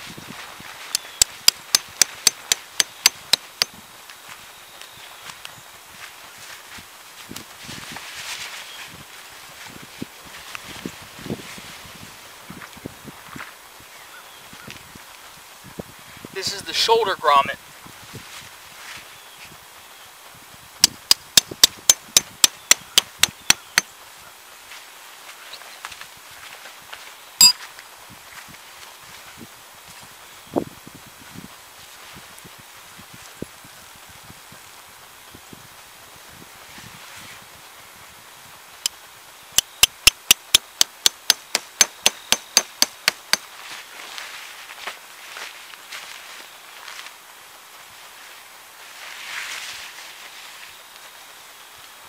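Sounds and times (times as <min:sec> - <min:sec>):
hammer striking tent stake: 0:01.0 - 0:03.8, 0:20.8 - 0:23.9, 0:39.6 - 0:43.5.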